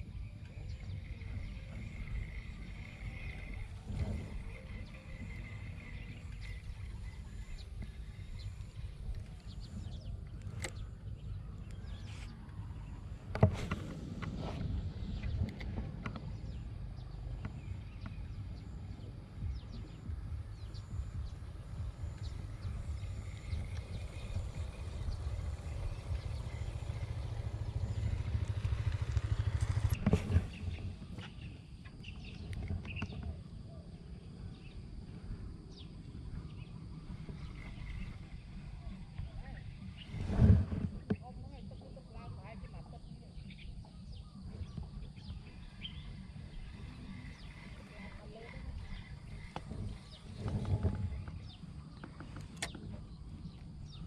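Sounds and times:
low rumble: 0.0s - 54.0s
wind buffeting microphone: 0.0s - 54.0s
faint ticks: 22.1s - 24.6s.

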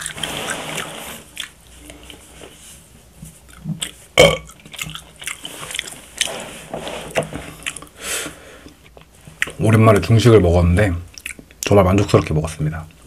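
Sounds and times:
man burping: 4.2s - 4.5s.

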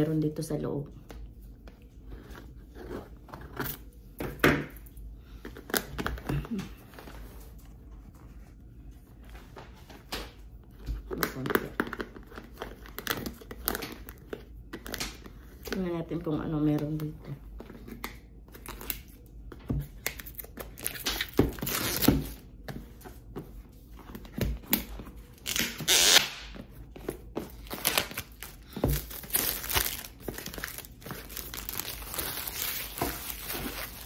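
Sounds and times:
cardboard and paper rustling: 5.2s - 15.9s, 26.5s - 34.0s.

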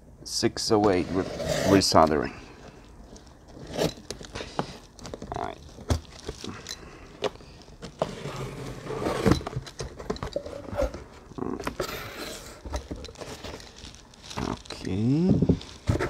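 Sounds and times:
cardboard scraping and rustling: 0.8s - 2.1s, 7.8s - 16.0s.

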